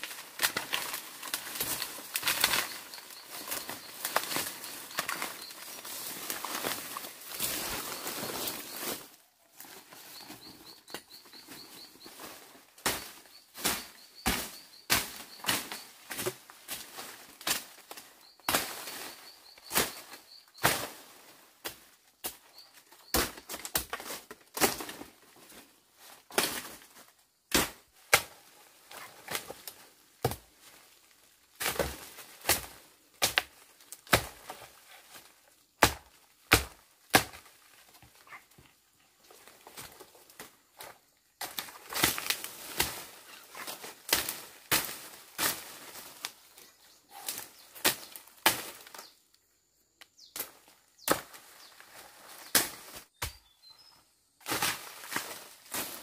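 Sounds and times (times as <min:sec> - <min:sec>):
blade chopping vegetation: 0:12.8 - 0:19.0, 0:35.8 - 0:37.5, 0:41.4 - 0:45.8.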